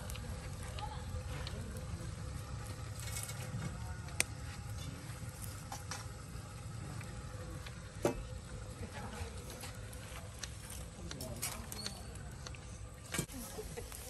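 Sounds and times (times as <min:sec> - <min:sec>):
steady low rumble: 0:00.0 - 0:11.2
embers crackling and popping: 0:00.0 - 0:14.0.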